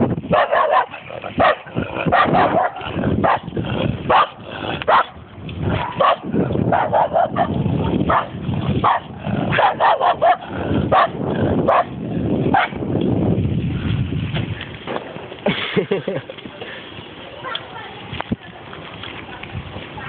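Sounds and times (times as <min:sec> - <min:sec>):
dog barking: 0:00.3 - 0:03.4, 0:04.1 - 0:05.1, 0:05.7 - 0:11.9, 0:12.5 - 0:12.8.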